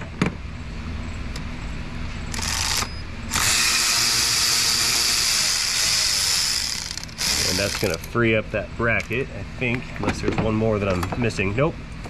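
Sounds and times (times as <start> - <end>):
cordless electric ratchet running: 2.3 - 8.1.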